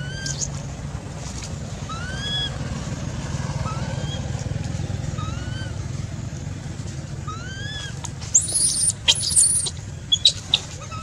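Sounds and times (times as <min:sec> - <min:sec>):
baby monkey squealing: 0:00.0 - 0:00.5, 0:01.9 - 0:02.5, 0:07.3 - 0:11.0
steady low rumble: 0:00.0 - 0:11.0
faint rising chirps: 0:08.3 - 0:10.6.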